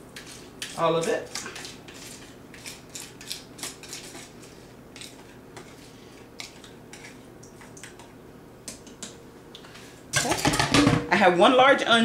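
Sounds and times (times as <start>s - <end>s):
utensil scraping a bowl: 0.0s - 7.3s.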